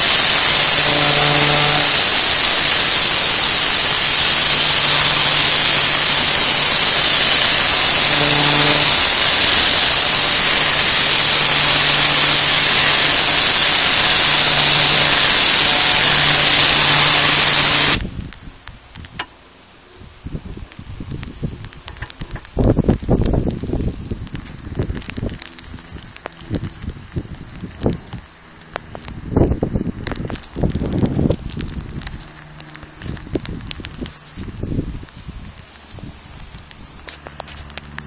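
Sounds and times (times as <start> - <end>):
pressure washer spraying: 0.0 - 18.1
low hum: 0.0 - 18.4.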